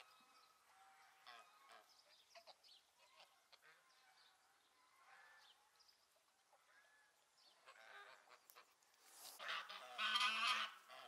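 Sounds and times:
geese calling: 0:09.3 - 0:11.0.

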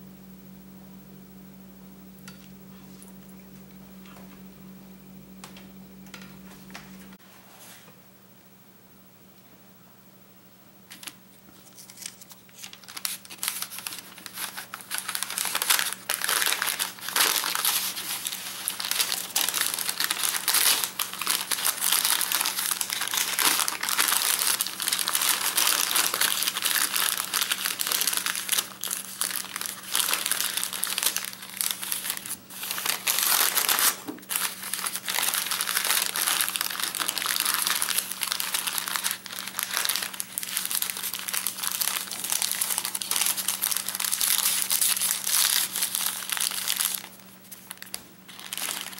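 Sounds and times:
wrapping paper crinkling: 0:10.9 - 0:48.9.

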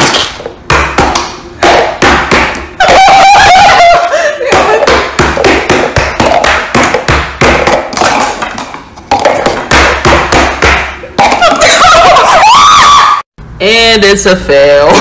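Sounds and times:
excited shrieks: 0:02.8 - 0:04.2, 0:12.0 - 0:13.2
laughter: 0:11.4 - 0:12.8.

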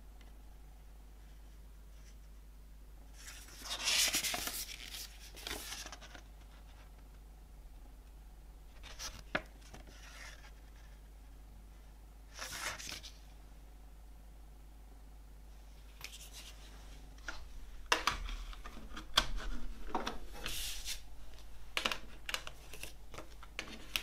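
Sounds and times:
paper pages turning: 0:03.2 - 0:06.7, 0:08.8 - 0:11.0, 0:12.3 - 0:13.2, 0:17.2 - 0:24.0.

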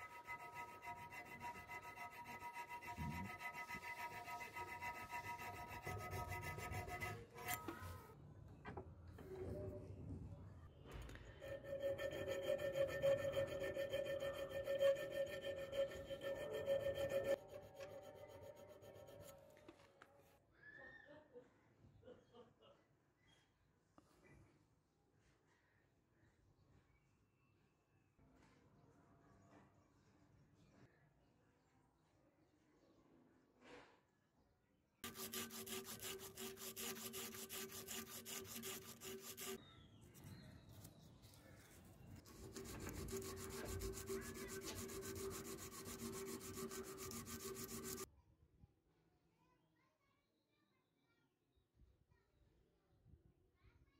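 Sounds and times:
hand file rasping on steel: 0:00.0 - 0:08.0, 0:11.4 - 0:19.5, 0:35.0 - 0:39.6, 0:42.2 - 0:48.1.

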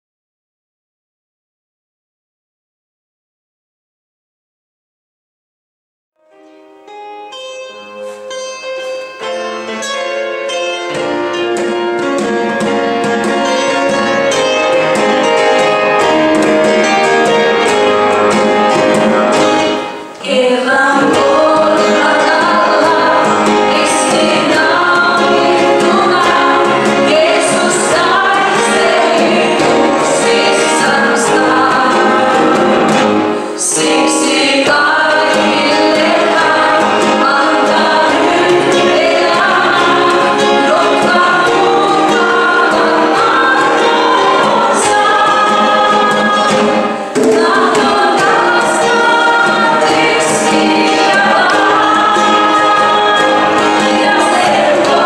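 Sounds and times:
band accompaniment: 0:06.3 - 0:55.0
conga drums: 0:10.9 - 0:20.2, 0:20.9 - 0:55.0
congregation singing a hymn: 0:10.9 - 0:55.0.

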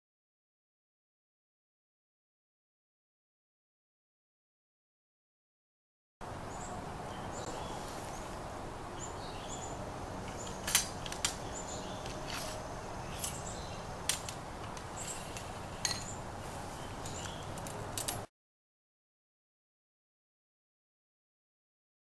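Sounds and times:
birds chirping faintly: 0:06.2 - 0:18.3
steady outdoor background: 0:06.2 - 0:18.3
musket metallic clicks and clinks: 0:10.3 - 0:11.4, 0:17.0 - 0:18.3.

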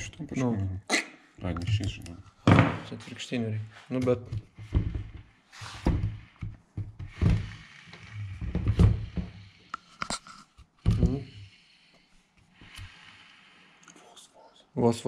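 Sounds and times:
tools knocking and thunking: 0:01.5 - 0:03.0, 0:04.0 - 0:07.5.

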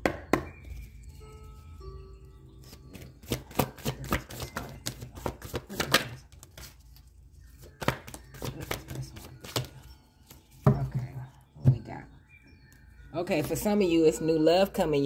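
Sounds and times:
paper cards being shuffled: 0:02.6 - 0:10.6.

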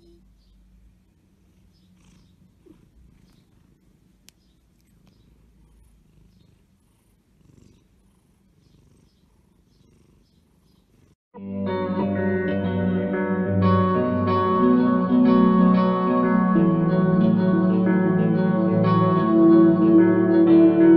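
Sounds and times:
cat purring: 0:00.0 - 0:11.2
acoustic guitar music: 0:11.4 - 0:20.9.

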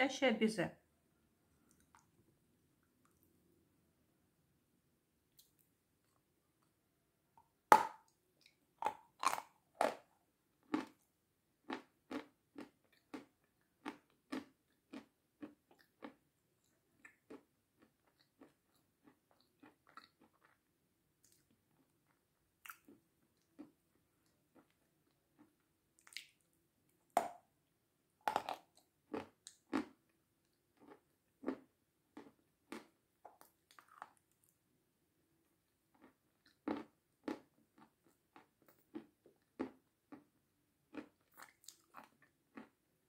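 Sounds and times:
crunchy chewing: 0:08.0 - 0:11.0, 0:11.6 - 0:26.4, 0:28.2 - 0:30.0, 0:35.9 - 0:40.3, 0:40.9 - 0:42.8
crunchy bite: 0:08.8 - 0:10.1, 0:28.2 - 0:29.9.

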